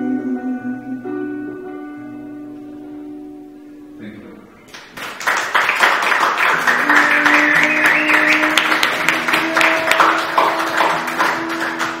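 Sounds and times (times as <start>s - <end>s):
music with long held notes: 0.0s - 4.4s, 6.4s - 12.0s
dense clapping: 4.7s - 12.0s.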